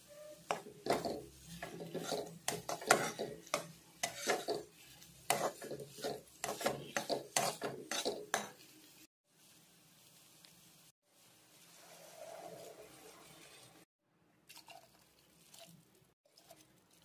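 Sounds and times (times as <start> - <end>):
spatula scraping frying pan: 0.0 - 8.8, 11.7 - 13.9.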